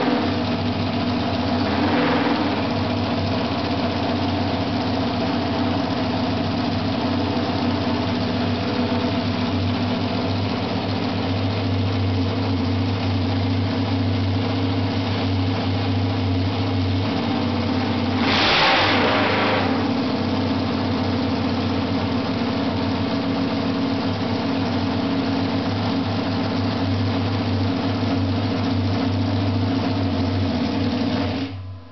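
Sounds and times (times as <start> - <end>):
motorcycle engine idling: 0.0 - 18.2, 19.2 - 31.9
motorcycle throttle rev: 1.6 - 3.5, 17.3 - 20.0.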